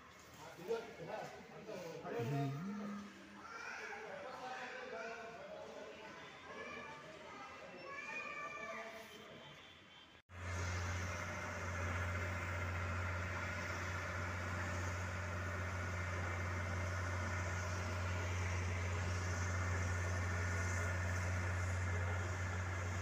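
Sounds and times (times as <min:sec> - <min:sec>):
train engine idling: 0:10.3 - 0:23.0.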